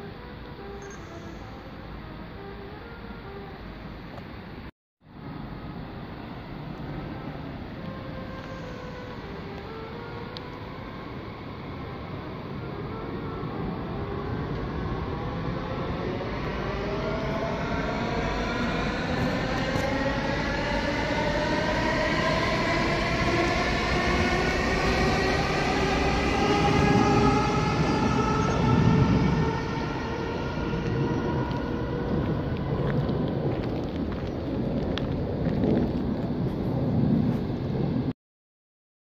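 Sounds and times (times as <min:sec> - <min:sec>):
rolling rail noise: 0:00.0 - 0:38.1
low rumble: 0:05.3 - 0:38.1
electric train motor whine: 0:06.2 - 0:33.6.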